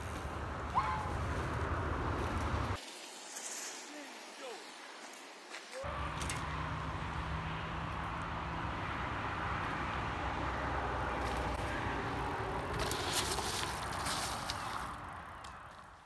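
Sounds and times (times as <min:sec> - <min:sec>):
bike tyres rolling on dirt: 0:00.0 - 0:16.0
gravelly crackles and clicks: 0:12.6 - 0:16.0.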